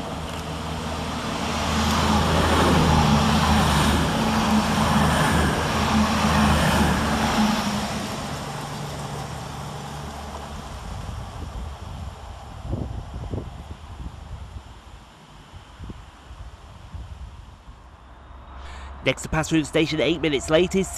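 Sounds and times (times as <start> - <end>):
train wheels on rails: 0.0 - 11.4.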